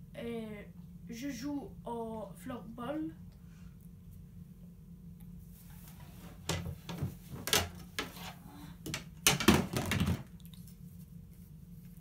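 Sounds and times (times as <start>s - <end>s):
plastic stick knocking and clattering: 8.9s - 10.3s.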